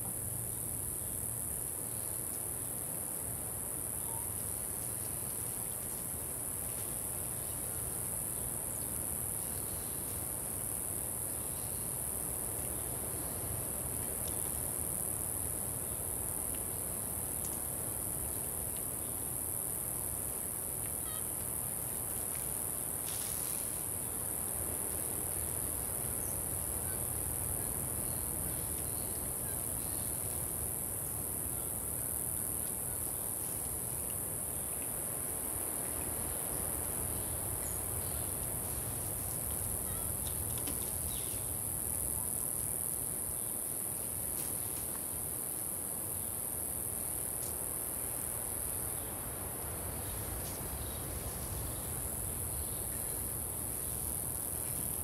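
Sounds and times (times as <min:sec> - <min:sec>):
insect chorus shrilling: 0:36.3 - 0:41.7.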